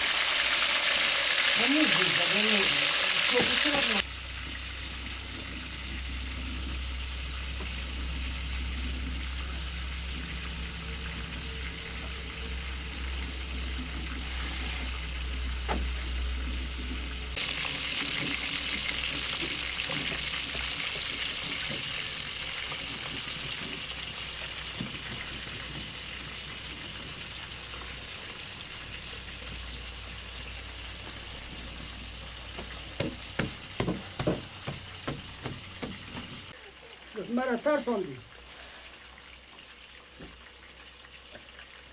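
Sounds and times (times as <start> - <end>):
hot oil sizzling: 0.0 - 41.9
low hum: 4.1 - 17.7.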